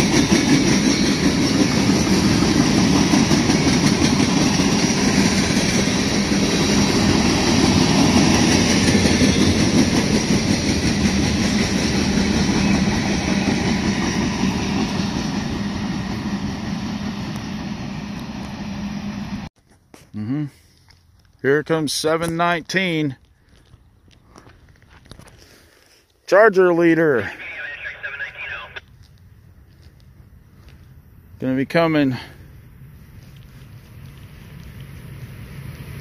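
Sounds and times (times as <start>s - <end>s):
freight train wheels rumbling: 0.0s - 19.5s.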